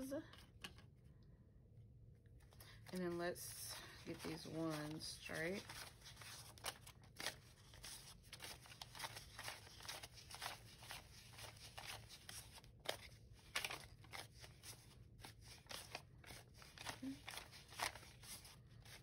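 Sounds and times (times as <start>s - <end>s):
paper banknotes rustling: 2.6s - 19.0s
crisp paper snaps and crinkles: 4.1s - 19.0s.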